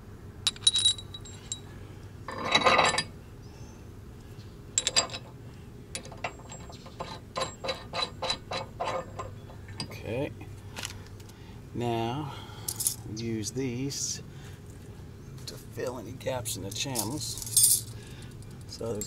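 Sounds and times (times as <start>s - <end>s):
steel hardware clinking: 0.4s - 1.7s, 2.3s - 3.1s, 4.8s - 5.3s, 5.9s - 10.1s, 16.7s - 19.0s
metallic jingling rattle: 0.5s - 1.7s, 2.3s - 3.1s, 4.8s - 5.3s, 6.0s - 9.9s, 12.7s - 13.0s, 16.7s - 19.0s.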